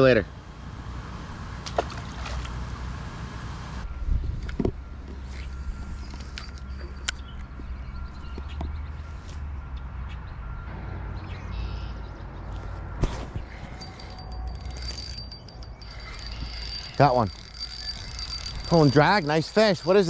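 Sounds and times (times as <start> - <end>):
fishing reel clicks: 13.7 - 20.0.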